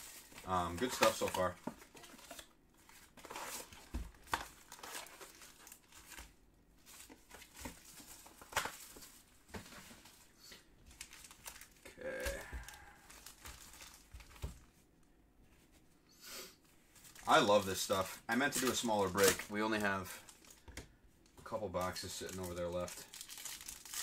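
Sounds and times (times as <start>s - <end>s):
foil wrappers crinkling and tearing: 0.0s - 9.2s, 10.9s - 14.6s, 17.0s - 20.7s, 21.4s - 24.0s.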